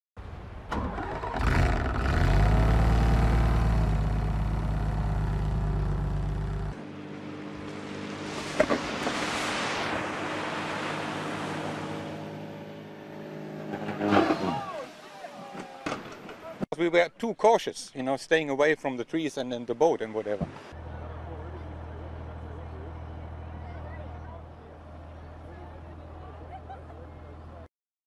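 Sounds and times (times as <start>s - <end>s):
outdoor noise: 0.2s - 27.7s
propeller plane engine: 1.0s - 9.3s.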